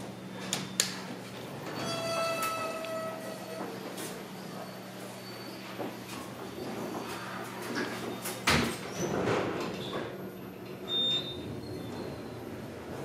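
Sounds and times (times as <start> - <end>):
lift car running: 0.0 - 8.4, 9.0 - 13.0
lift doors closing with thump: 7.8 - 10.2.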